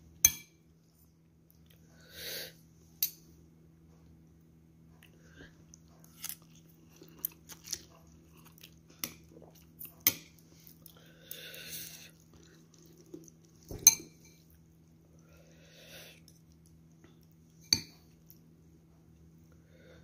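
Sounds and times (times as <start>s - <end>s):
chewing: 5.0s - 13.8s, 16.1s - 17.6s.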